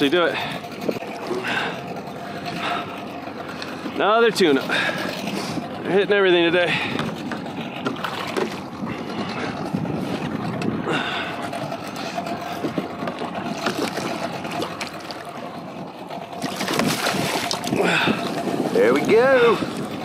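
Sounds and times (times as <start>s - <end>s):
water sloshing: 0.0s - 20.0s
wind: 0.0s - 20.0s.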